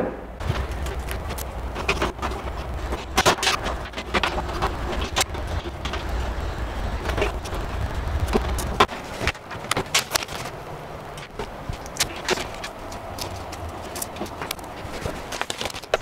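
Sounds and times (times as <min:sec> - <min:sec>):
low rumble: 0:00.2 - 0:08.9
network cables clicking: 0:00.4 - 0:16.0.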